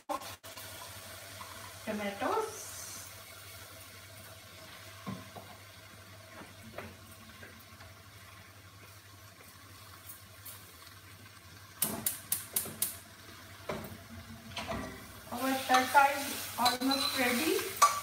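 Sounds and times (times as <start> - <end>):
food hissing in a pot: 0.1 - 4.9, 15.3 - 17.9
spoon clinking on metal pot: 16.6 - 18.0.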